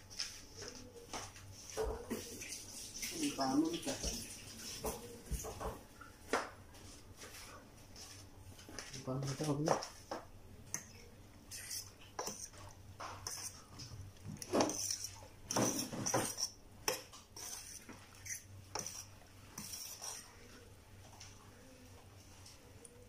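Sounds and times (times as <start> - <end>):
metal fork scraping a saucepan: 11.5 - 12.6, 13.2 - 13.6, 14.6 - 20.3.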